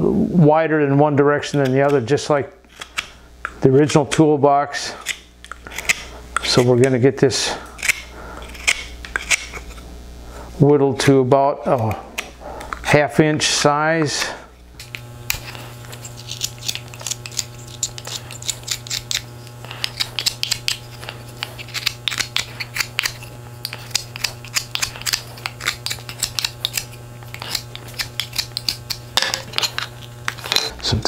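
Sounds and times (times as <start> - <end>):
steady low hum: 0.0 - 31.0
knife shaving wood: 4.9 - 9.8, 11.7 - 30.5.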